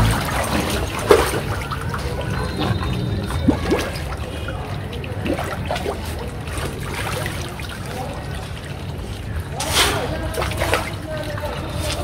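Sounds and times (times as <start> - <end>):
small water splashes: 0.0 - 12.0
water trickling and lapping: 0.0 - 12.0.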